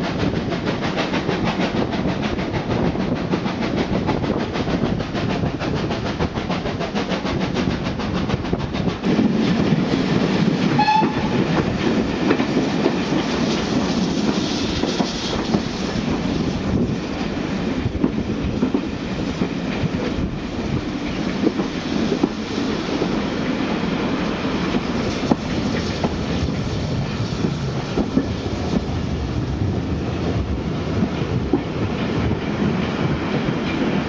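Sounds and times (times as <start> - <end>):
rumble of wheels on rail: 0.0 - 34.0.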